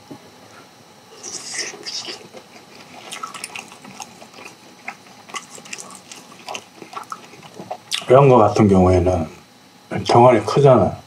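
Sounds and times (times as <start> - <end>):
wet sticky eating sounds: 1.1 - 8.2
chewing smacks: 1.2 - 8.1.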